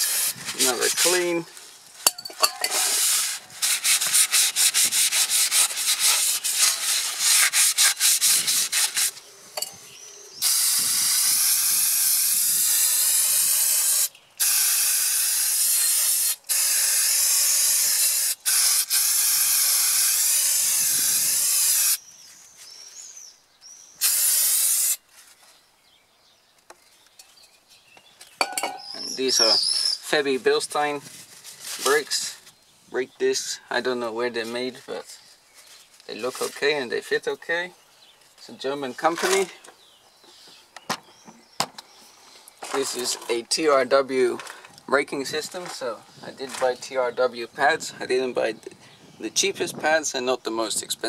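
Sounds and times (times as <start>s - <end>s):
aerosol spray hissing: 0.0s - 1.3s, 10.4s - 22.0s, 24.0s - 25.0s
cloth rubbing brake disc: 2.5s - 9.3s.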